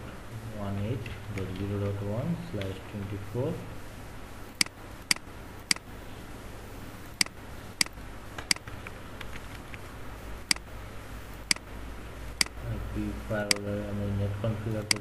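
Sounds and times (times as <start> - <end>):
faint low hum: 0.0 - 15.0
computer mouse clicks: 4.6 - 5.9, 7.2 - 9.8, 10.5 - 10.7, 11.4 - 11.7.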